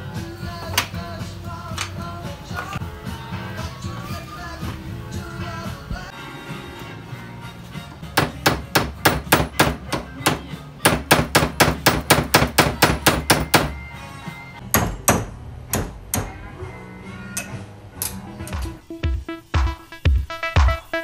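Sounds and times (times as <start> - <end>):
hammer striking metal: 8.2 - 13.8, 14.6 - 16.4.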